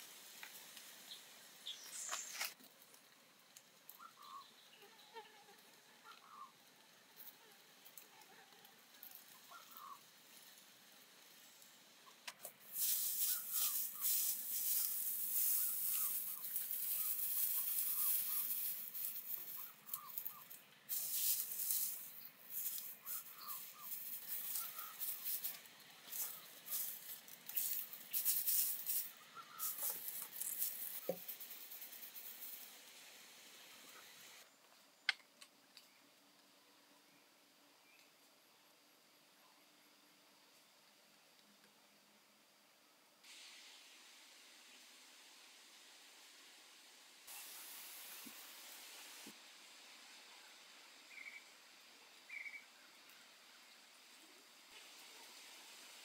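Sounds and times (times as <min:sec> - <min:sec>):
dry straw rustling: 0:07.2 - 0:11.8, 0:12.4 - 0:33.1.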